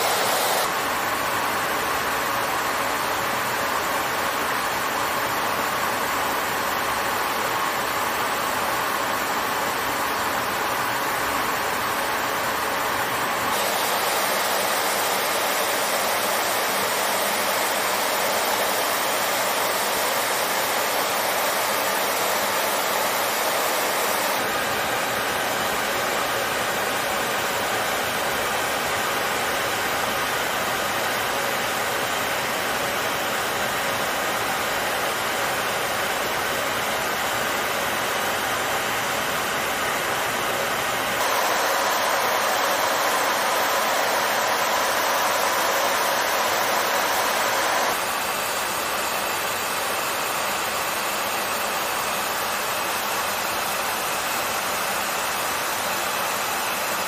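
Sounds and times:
jet engine hiss in cabin: 0.0s - 4.8s, 5.6s - 57.0s.

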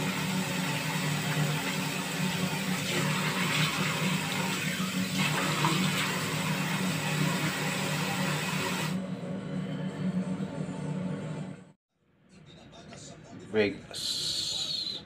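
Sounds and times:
sink tap running: 0.0s - 9.0s.

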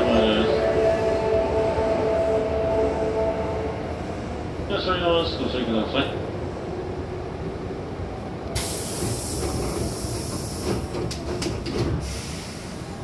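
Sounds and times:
stopped train rumble: 0.0s - 13.0s
door air hiss: 8.6s - 10.8s, 12.0s - 13.0s.

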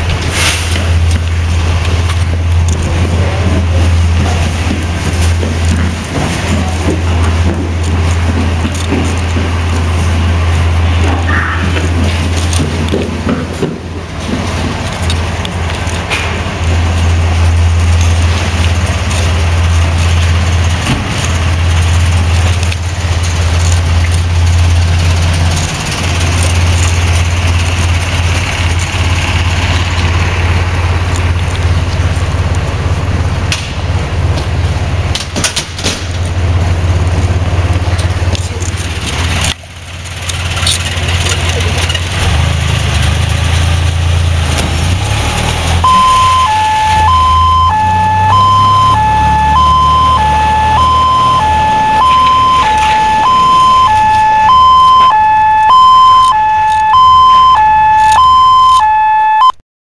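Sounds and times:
diesel engine droning: 0.0s - 59.6s
two-tone siren: 45.8s - 59.6s.

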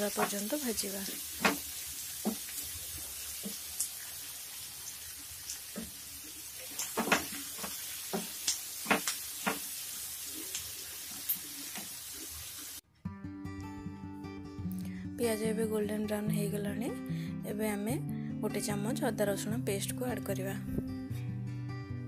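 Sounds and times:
onions sizzling in oil: 0.0s - 12.8s.

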